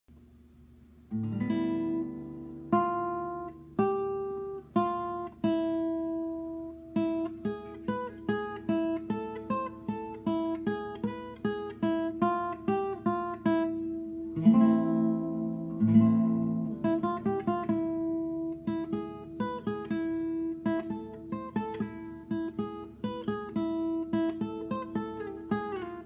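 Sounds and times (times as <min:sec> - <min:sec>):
fingerstyle acoustic guitar: 0:01.1 - 0:26.0.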